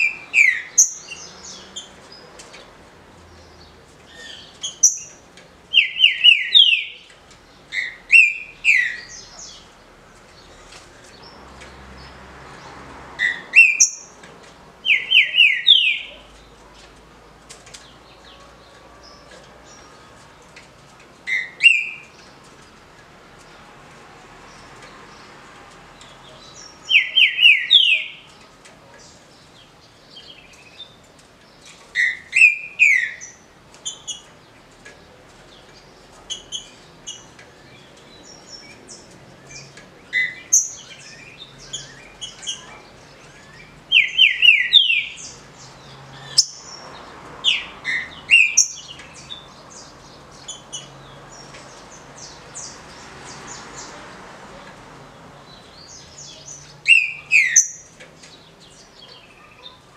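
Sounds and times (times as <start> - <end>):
bird whistled song: 56.9 - 57.8.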